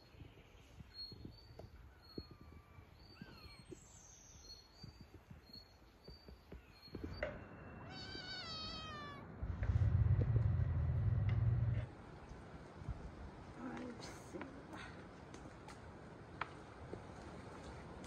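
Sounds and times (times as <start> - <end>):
cat meowing: 7.8 - 9.3
loud low hum: 9.3 - 11.9.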